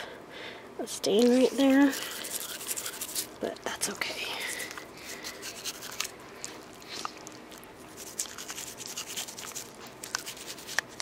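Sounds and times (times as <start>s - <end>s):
toothbrush brushing teeth: 1.2s - 3.4s, 4.4s - 11.0s.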